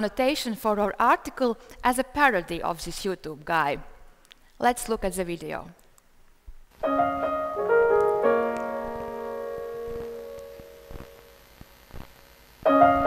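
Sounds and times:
slow piano music: 6.8 - 11.1, 12.6 - 13.0.

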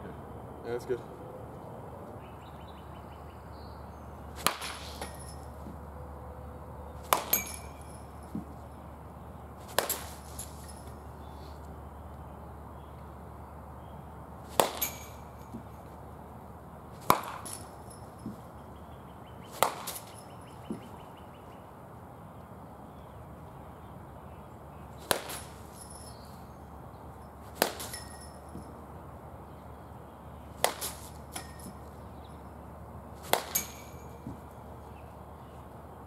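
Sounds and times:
baseball bat hitting ball: 4.3 - 5.8, 7.0 - 8.6, 9.6 - 10.9, 14.5 - 15.8, 17.0 - 18.4, 19.5 - 21.0, 25.0 - 25.8, 27.4 - 28.7, 30.6 - 32.0, 33.2 - 34.5.

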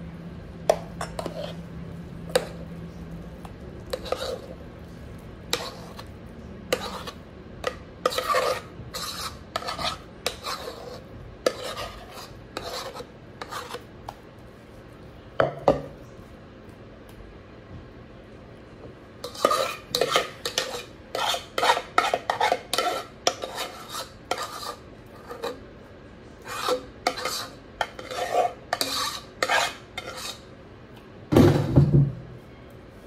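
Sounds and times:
spoon scraping a dish: 0.7 - 1.7, 2.3 - 2.7, 3.8 - 4.6, 5.5 - 14.2, 19.2 - 25.7, 26.4 - 30.5.

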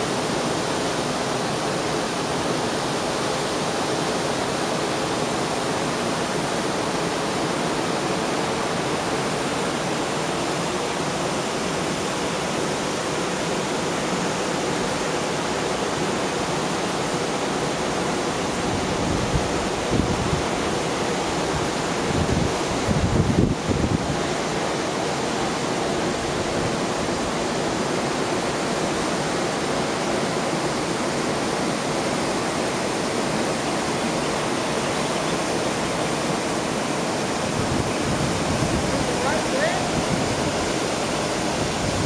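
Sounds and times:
water rushing down cascade: 0.0 - 42.0
wind buffets on microphone: 18.6 - 20.8, 21.4 - 24.4, 37.4 - 42.0.

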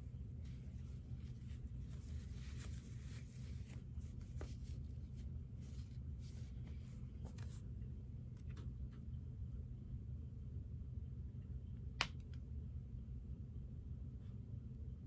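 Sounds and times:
sock fabric rustling: 0.0 - 7.8
steady low hum: 0.0 - 15.0.

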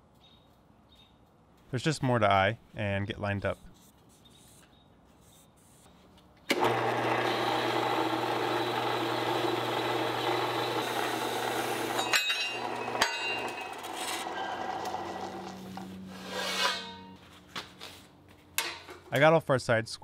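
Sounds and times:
bandsaw cutting steel: 6.5 - 17.1.

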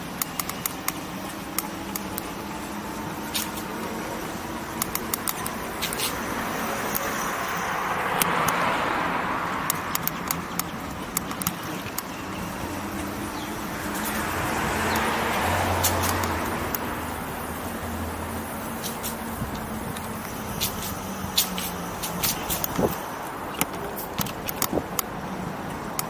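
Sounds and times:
sharp clicks: 0.0 - 2.4, 4.7 - 6.2, 8.1 - 8.7, 9.6 - 12.5, 13.3 - 16.9, 18.8 - 25.1
road traffic noise: 0.0 - 26.0.

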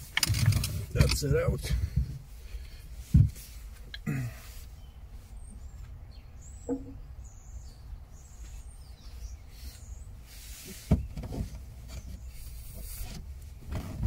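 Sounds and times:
faint bird chirps: 4.7 - 11.2.

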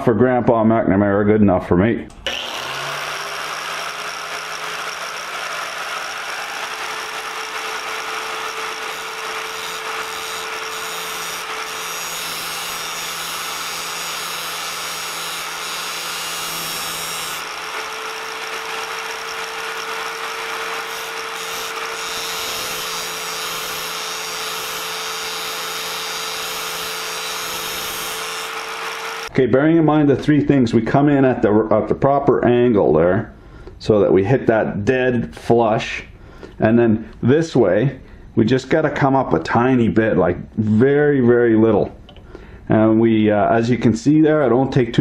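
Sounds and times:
angle grinder grinding drill bit: 2.2 - 29.3.

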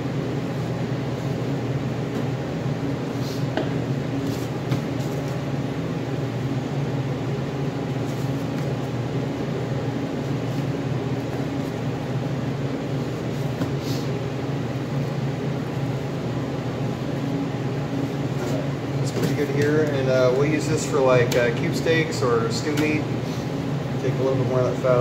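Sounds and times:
electric fan humming: 0.0 - 25.0.

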